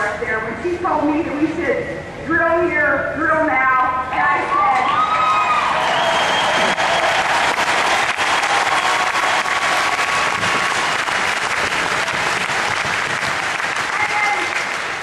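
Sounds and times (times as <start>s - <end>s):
large audience applauding: 4.9s - 15.0s.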